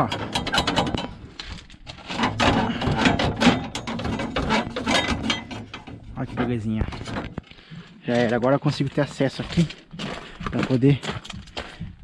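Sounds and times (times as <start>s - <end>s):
metal rattling and scraping: 0.0s - 11.6s.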